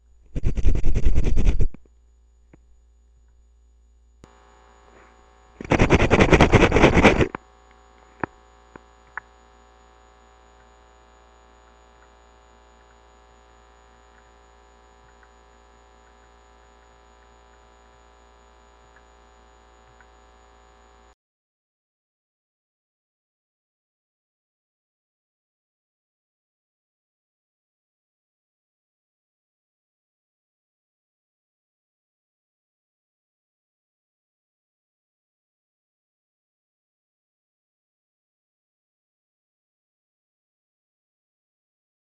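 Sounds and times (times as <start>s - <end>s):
low mains hum: 0.0s - 21.2s
toothbrush scrubbing teeth: 5.6s - 7.3s.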